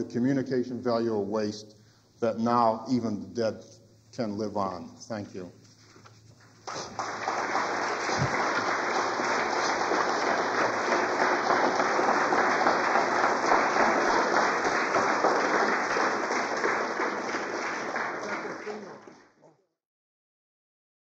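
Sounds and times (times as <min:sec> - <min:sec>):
audience applauding: 0:06.6 - 0:19.4.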